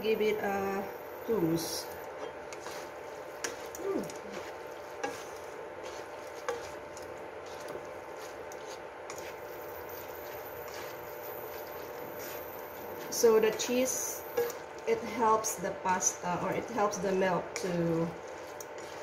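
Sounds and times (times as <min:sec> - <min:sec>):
pasta sizzling in a wok: 0:00.0 - 0:19.0
utensils clicking against pan: 0:03.4 - 0:07.9, 0:13.4 - 0:14.8, 0:17.6 - 0:19.0.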